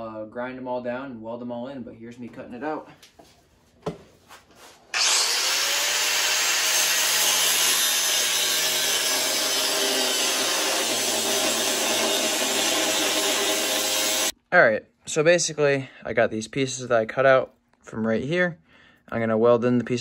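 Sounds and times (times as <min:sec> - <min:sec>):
angle grinder cutting metal: 0:04.9 - 0:14.3.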